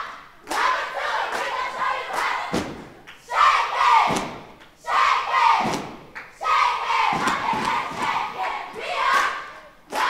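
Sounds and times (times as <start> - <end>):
children chanting in unison: 0.0 - 10.0
stomping and clapping: 0.4 - 3.4, 4.0 - 4.8, 5.6 - 10.0.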